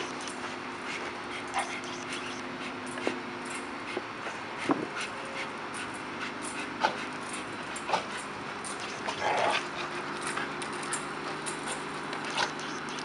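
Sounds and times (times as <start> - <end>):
low hum: 0.0 - 3.0
dogs whining and grunting: 0.0 - 3.6, 4.6 - 13.0.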